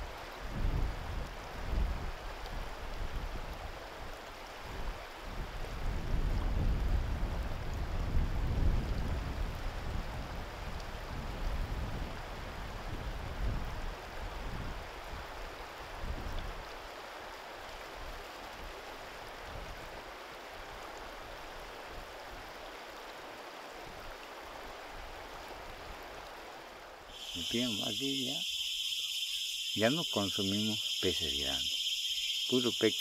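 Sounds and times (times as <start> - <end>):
river water flowing: 14.8 - 33.0.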